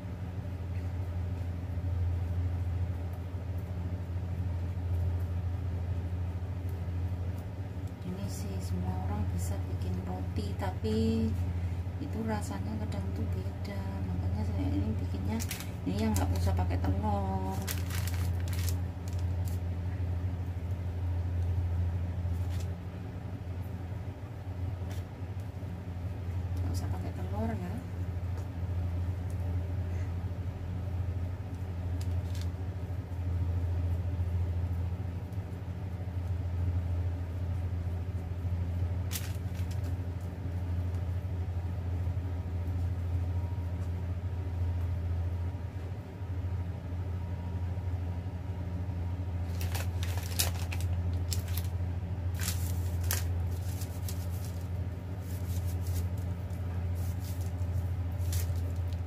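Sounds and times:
steady low hum: 0.0 - 59.0
baking paper rustling: 14.1 - 23.0, 31.4 - 33.3, 37.5 - 41.2, 49.3 - 59.0.

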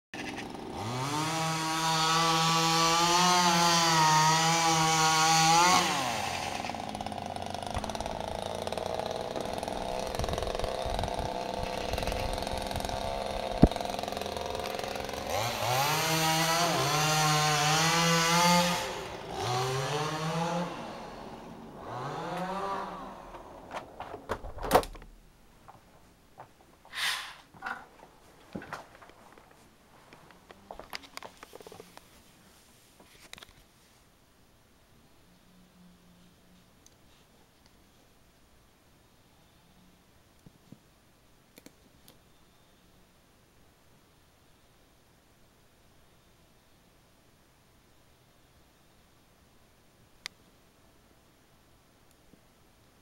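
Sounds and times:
small two-stroke engine revving: 0.2 - 23.8.

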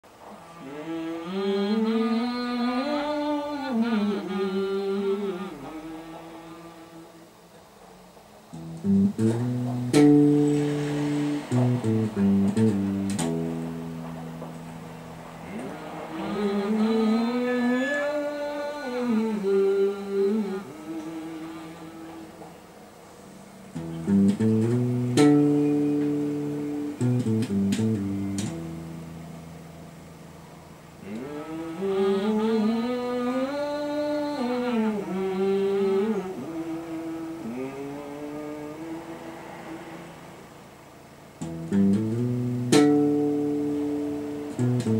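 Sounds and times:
person singing wordless melody: 0.0 - 7.6, 15.3 - 22.8, 31.0 - 40.7
guitar plucked melody: 8.5 - 18.8, 23.7 - 31.4, 41.4 - 44.9.

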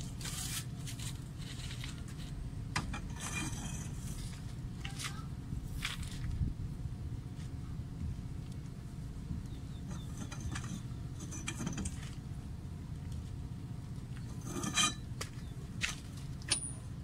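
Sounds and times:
low background rumble: 0.0 - 17.0
metal scrape: 0.2 - 4.4, 9.9 - 12.2, 14.3 - 15.1.

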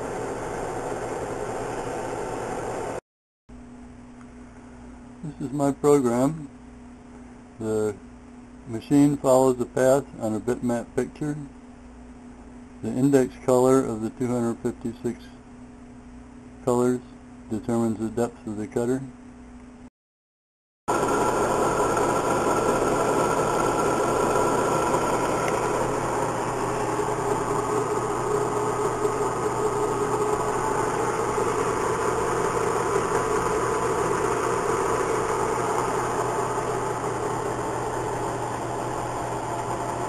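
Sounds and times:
milling machine humming: 0.0 - 3.0, 20.9 - 40.0.

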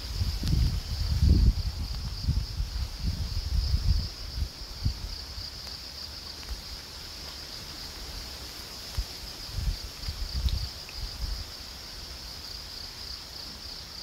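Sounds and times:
wind buffeting microphone: 0.0 - 5.5, 8.9 - 11.6
high-pitched insect chorus: 0.0 - 14.0.

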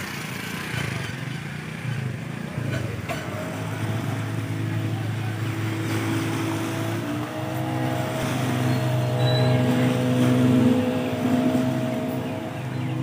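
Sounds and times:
outboard motor running: 2.4 - 13.0.

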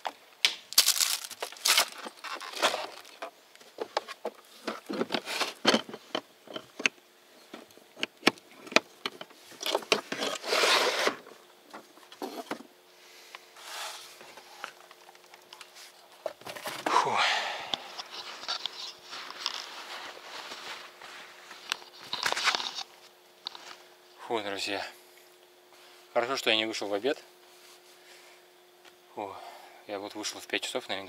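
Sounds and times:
scraping rustle: 9.3 - 12.6, 17.8 - 23.9.

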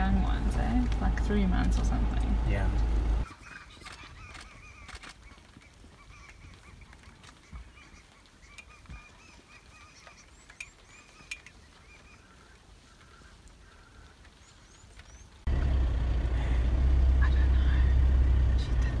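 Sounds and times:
car cabin engine drone: 0.0 - 3.2, 15.5 - 19.0
birds chirping: 0.0 - 19.0.

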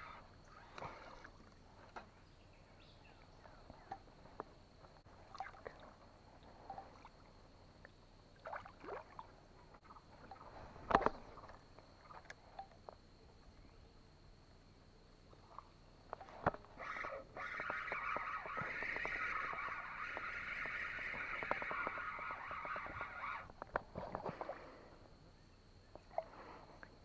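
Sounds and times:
faint steady high hum: 0.0 - 17.6.

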